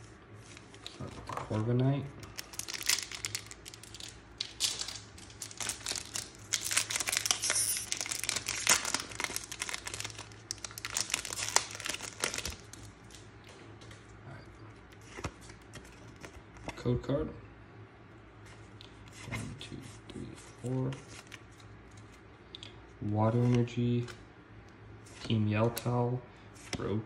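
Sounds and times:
foil wrapper tearing and crinkling: 2.2s - 12.9s.

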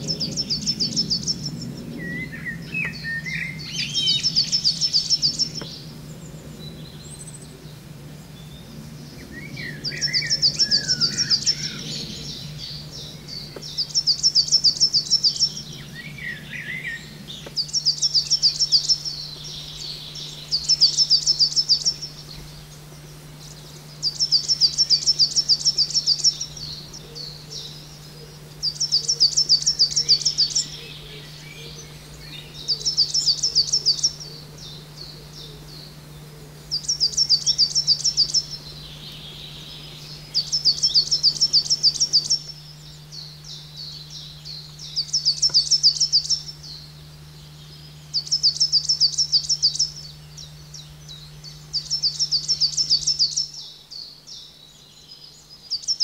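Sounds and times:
soft lower bird chirps: 0.0s - 56.0s
steady low hum: 0.0s - 56.0s
bird singing high repeated notes: 36.7s - 56.0s.

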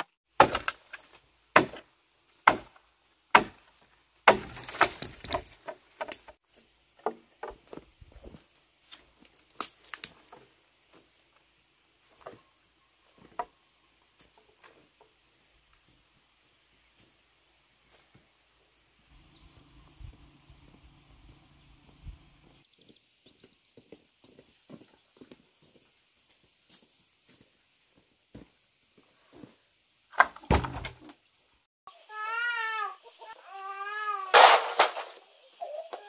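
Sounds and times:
bamboo snapping and cracking: 4.3s - 6.3s, 9.3s - 10.4s
footsteps crunching on dirt path: 7.4s - 13.4s.

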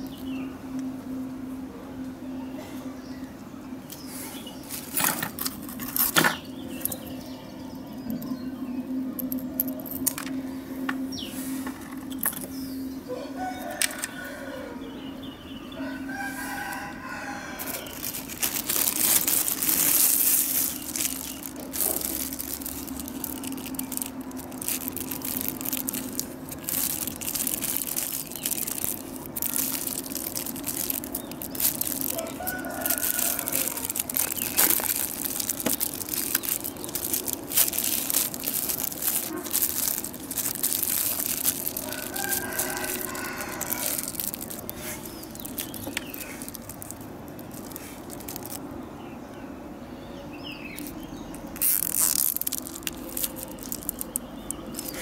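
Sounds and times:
plastic film crinkling: 4.6s - 7.3s, 16.0s - 48.7s, 50.8s - 55.0s.

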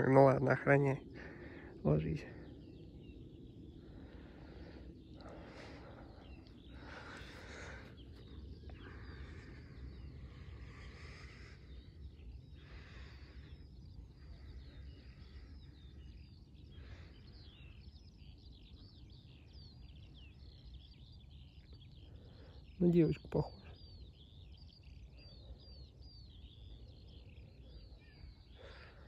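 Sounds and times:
steady low rumble: 0.0s - 22.6s
small birds chirping: 0.0s - 29.0s.

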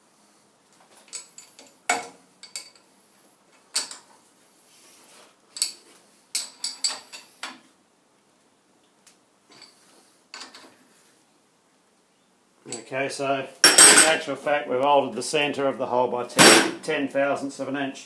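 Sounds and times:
spanner clinking on metal: 13.6s - 14.2s.

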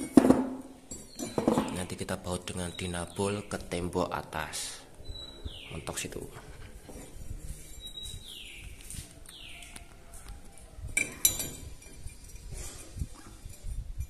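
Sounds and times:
metal bracket clinking on concrete: 0.0s - 2.0s, 11.0s - 14.0s.

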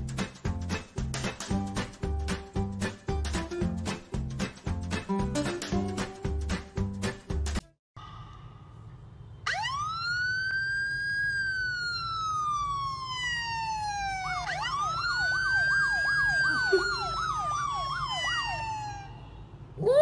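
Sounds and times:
electronic siren wailing: 9.4s - 19.4s.

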